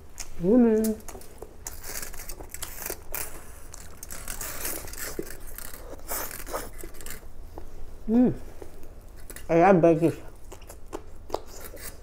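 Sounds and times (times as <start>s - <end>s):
person chewing noodles: 0.2s - 7.8s, 10.3s - 12.0s.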